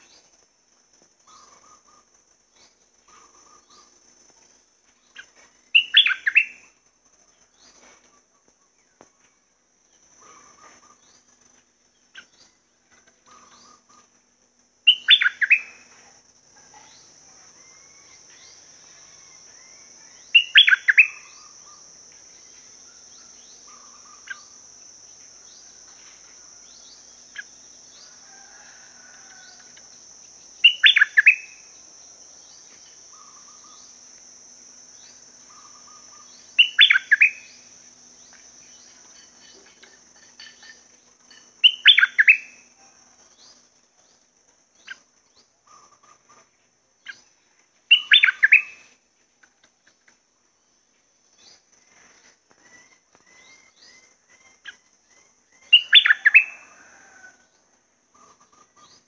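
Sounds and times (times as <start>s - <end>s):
steady high-pitched hiss: 0.0s - 59.0s
bird song phrases: 5.1s - 6.7s, 14.9s - 15.8s, 16.6s - 21.8s, 30.6s - 31.6s, 35.0s - 37.6s, 41.3s - 42.6s, 47.0s - 48.9s, 52.6s - 57.2s.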